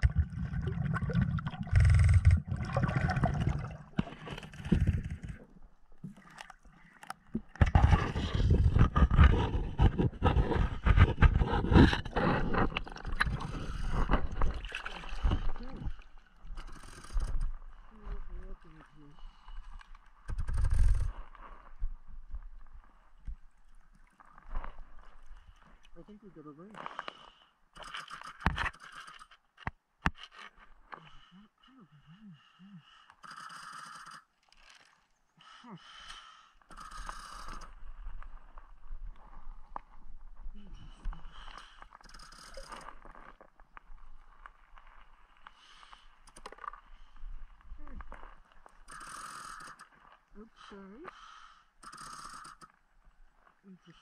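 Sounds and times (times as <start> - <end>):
water sloshing and bubbling: 0.0 - 27.2, 34.3 - 35.5.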